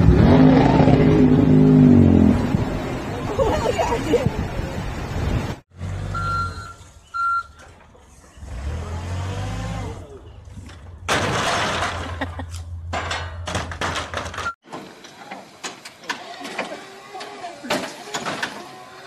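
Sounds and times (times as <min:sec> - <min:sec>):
short beeps: 0:06.1 - 0:07.6
wooden pallets crashing down: 0:11.1 - 0:15.0.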